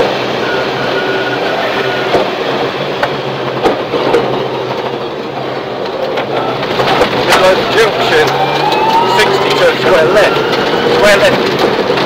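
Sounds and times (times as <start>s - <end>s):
car engine running hard: 0.0s - 12.0s
tyres on gravel: 1.7s - 12.0s.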